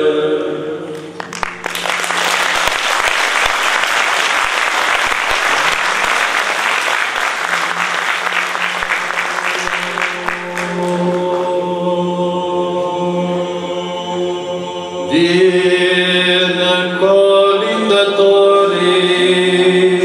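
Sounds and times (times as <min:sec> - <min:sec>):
audience applause: 0:01.0 - 0:11.4
men's choir singing: 0:09.5 - 0:20.0.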